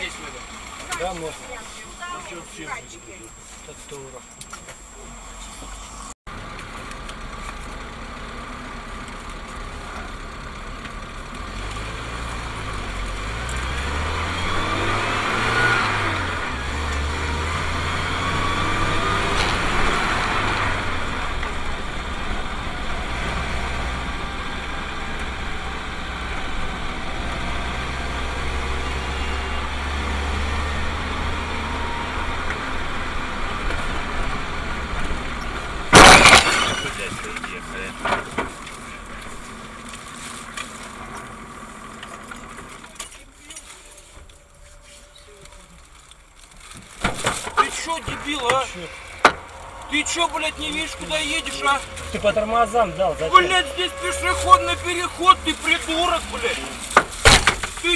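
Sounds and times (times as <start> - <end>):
car engine running: 4.8 - 44.4, 46.8 - 57.9
loud crash bang: 35.9 - 37.4, 57.1 - 57.8.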